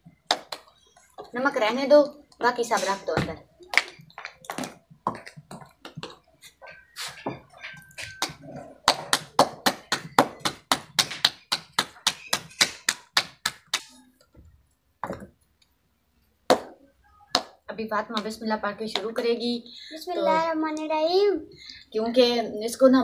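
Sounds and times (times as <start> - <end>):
hands slapping dough: 0.2 - 0.8, 8.0 - 14.0, 16.5 - 16.8
steel utensils clinking: 6.6 - 8.6.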